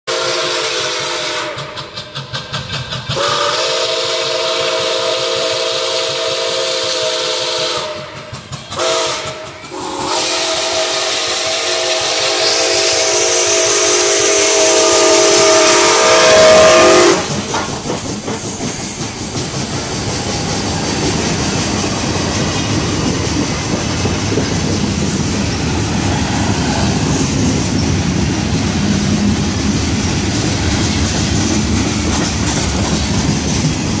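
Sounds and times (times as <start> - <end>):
steam whistle blast: 0.0 - 1.9, 3.2 - 8.2, 8.8 - 17.3
train rolling past rumble: 0.1 - 34.0
wheels clacking on rails: 0.2 - 34.0.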